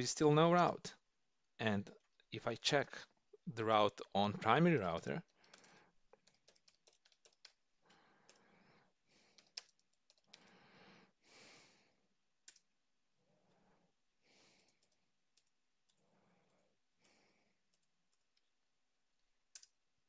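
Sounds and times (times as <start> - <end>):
typing on a keyboard: 5.4 - 7.6, 8.2 - 8.5, 9.3 - 10.5, 12.4 - 12.7, 14.6 - 16.6, 17.7 - 18.5, 19.5 - 19.8.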